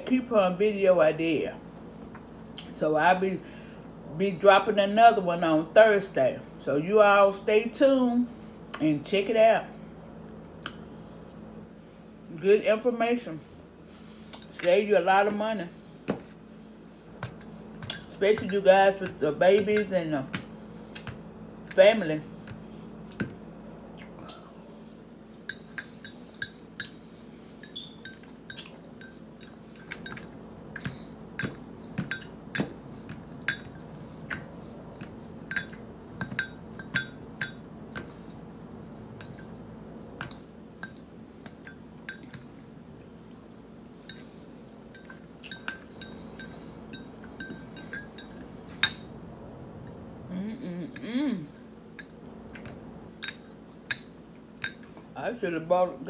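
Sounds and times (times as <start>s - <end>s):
fork clinking on ceramic bowls: 35.5s - 37.6s, 45.0s - 49.1s.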